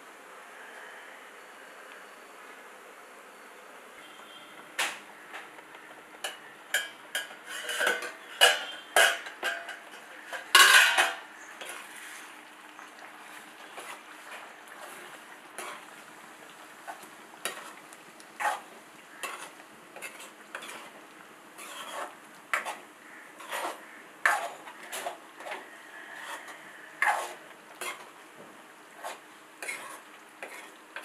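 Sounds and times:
metal ladle scraping a pan: 0:06.2 - 0:12.4, 0:13.3 - 0:15.9, 0:16.9 - 0:17.8, 0:18.4 - 0:21.0, 0:21.6 - 0:28.1, 0:29.0 - 0:31.0.

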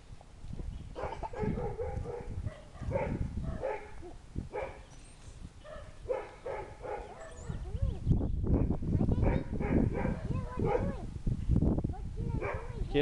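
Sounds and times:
puppy barking: 0:01.0 - 0:04.8, 0:05.6 - 0:07.6, 0:08.6 - 0:11.0, 0:12.4 - 0:12.8.

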